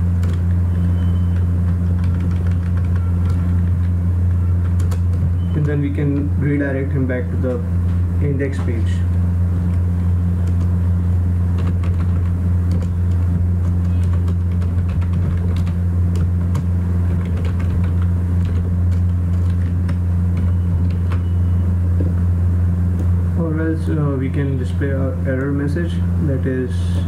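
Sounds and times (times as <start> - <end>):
loud low hum: 0.0 - 27.0
keyboard clicks: 0.2 - 0.6, 1.2 - 4.0, 4.6 - 6.3, 10.4 - 10.7, 11.6 - 21.3.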